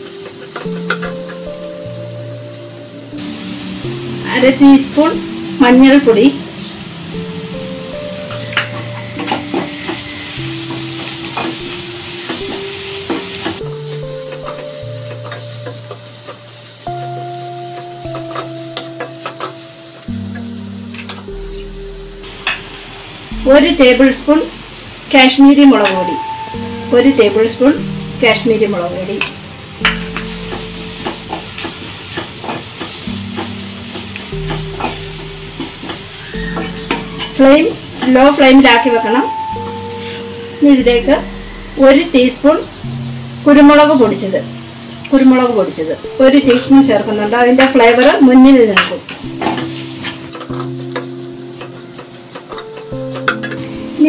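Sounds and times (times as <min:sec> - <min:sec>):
soft background music: 0:00.0 - 0:54.0
vegetables sizzling in oil: 0:00.0 - 0:54.0
wooden spatula scraping wok: 0:26.9 - 0:43.7, 0:47.6 - 0:54.0.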